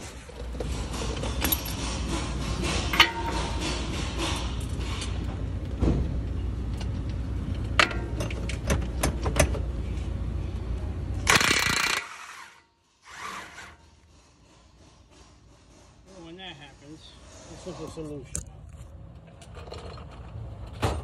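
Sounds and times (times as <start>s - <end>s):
impact wrench hammering: 1.0s - 4.6s, 11.3s - 12.4s.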